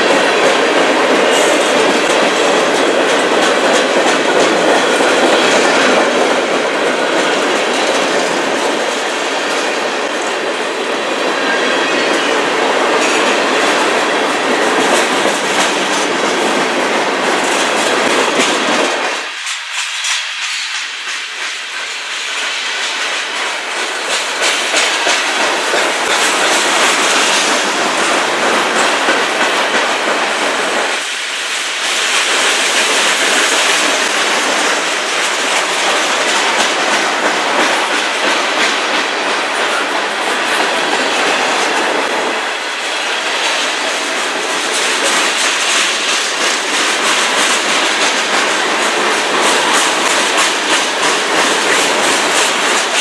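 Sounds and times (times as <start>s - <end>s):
freight train rolling past: 0.0s - 53.0s
wheels clicking over track: 12.9s - 31.0s, 31.8s - 53.0s.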